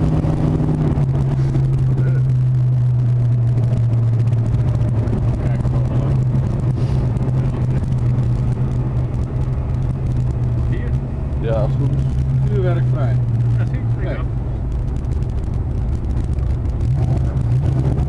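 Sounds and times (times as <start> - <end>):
car engine droning inside cabin: 0.0 - 18.0.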